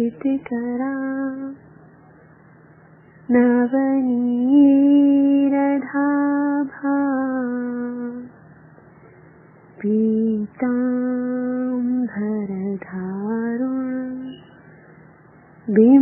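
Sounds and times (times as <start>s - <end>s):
woman chanting a slow melody: 15.7s - 16.0s.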